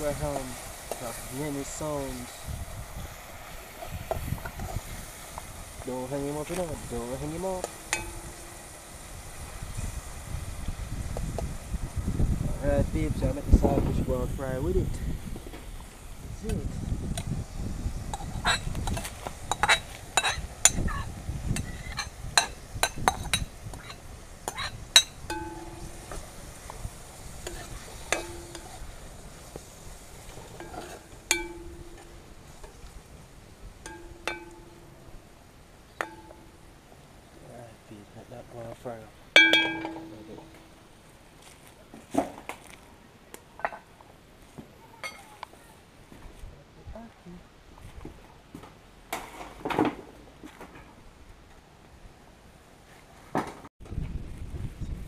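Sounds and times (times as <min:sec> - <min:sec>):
metal spoon clinking against bowl: 0:07.6 - 0:08.6, 0:24.5 - 0:26.0, 0:27.5 - 0:28.7, 0:30.6 - 0:32.2, 0:33.9 - 0:35.0, 0:39.4 - 0:40.7
metallic clang of cookware: 0:07.6 - 0:08.6, 0:21.6 - 0:26.2, 0:27.5 - 0:28.8, 0:30.6 - 0:32.2, 0:33.8 - 0:35.0, 0:36.0 - 0:36.6, 0:39.4 - 0:40.8
dishes clattering and clinking: 0:39.4 - 0:40.7.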